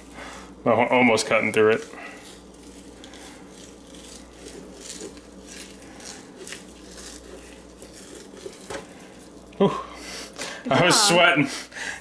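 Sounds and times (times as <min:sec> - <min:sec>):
knife scraping fish fillet: 0:01.7 - 0:09.4.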